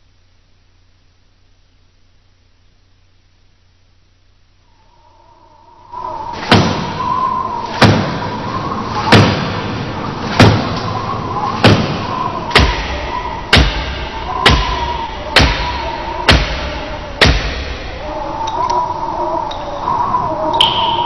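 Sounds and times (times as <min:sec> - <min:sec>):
steady hiss: 0:00.0 - 0:21.0
heavy thuds: 0:06.0 - 0:18.4
faint held tone: 0:10.8 - 0:21.0.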